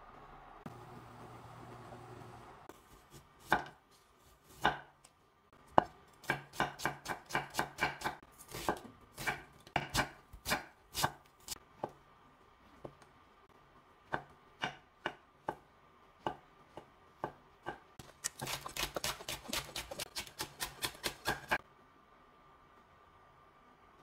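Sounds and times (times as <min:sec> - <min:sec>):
knife chopping on wooden board: 0:03.1 - 0:03.8, 0:04.5 - 0:04.9, 0:05.7 - 0:11.2, 0:16.2 - 0:21.6.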